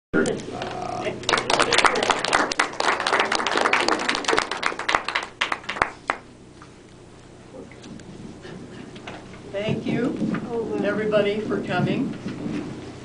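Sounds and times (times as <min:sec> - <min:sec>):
audience applauding: 0:01.2 - 0:06.3.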